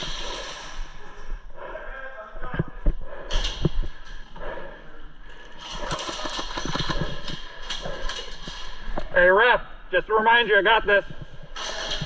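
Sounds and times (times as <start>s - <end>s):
airsoft guns firing: 5.8s - 7.3s.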